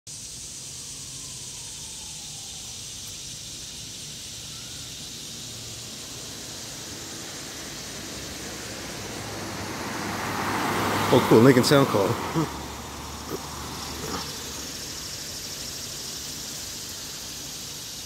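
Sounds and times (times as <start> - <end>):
cicadas buzzing: 0.1 - 18.0
car approaching: 0.8 - 18.0.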